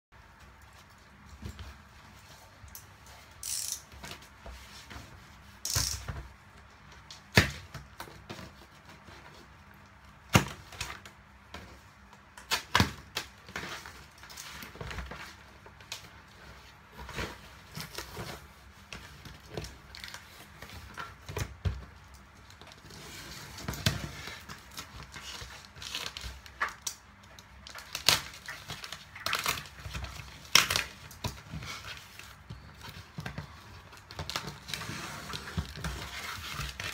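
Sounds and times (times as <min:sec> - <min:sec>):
packing tape cut and torn: 0:03.4 - 0:04.2, 0:05.6 - 0:06.1, 0:27.6 - 0:31.2.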